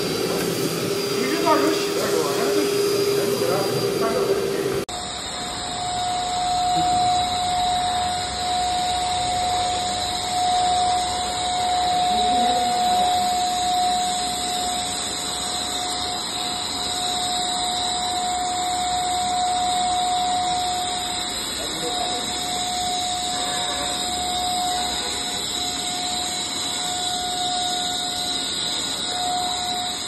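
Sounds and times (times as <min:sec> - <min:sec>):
vacuum cleaner running: 0:00.0 - 0:30.0.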